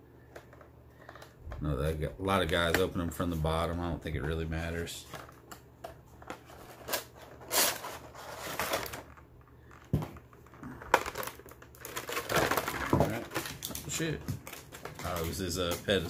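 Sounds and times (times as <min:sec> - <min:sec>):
packaging crinkling and scraping: 0:00.2 - 0:01.4, 0:02.3 - 0:16.0.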